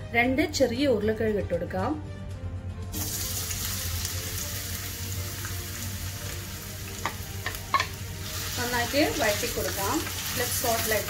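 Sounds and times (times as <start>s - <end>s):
potatoes sizzling in oil: 2.9s - 11.0s.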